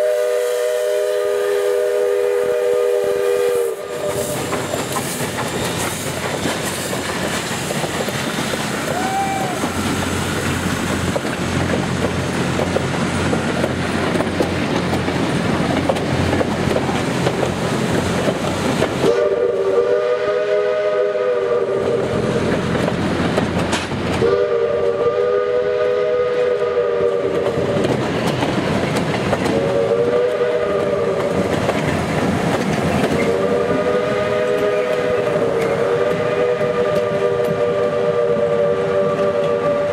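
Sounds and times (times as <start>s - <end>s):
locomotive chime whistle blasts: 0.0s - 4.4s, 19.0s - 22.2s, 24.2s - 27.4s, 29.6s - 31.0s, 33.2s - 39.9s
steam locomotive pulling away: 0.0s - 39.9s
coaches clacking over rails: 0.9s - 39.9s.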